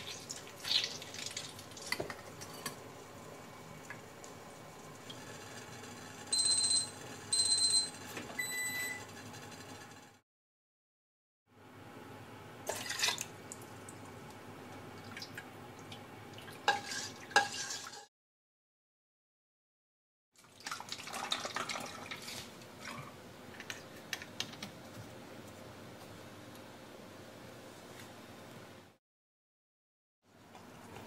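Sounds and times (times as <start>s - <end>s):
liquid pouring and stirring: 12.7s - 14.4s, 15.0s - 18.1s, 20.4s - 23.8s.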